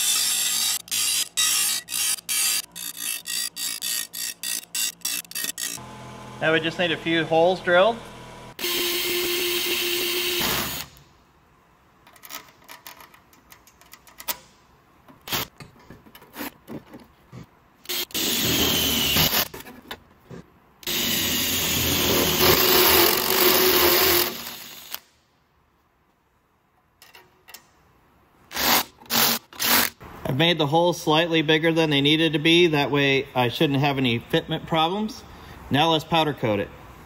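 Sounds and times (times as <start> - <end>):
cordless drill drilling sheet metal: 0.0 - 6.9, 8.6 - 10.9, 17.9 - 19.5, 20.8 - 25.0.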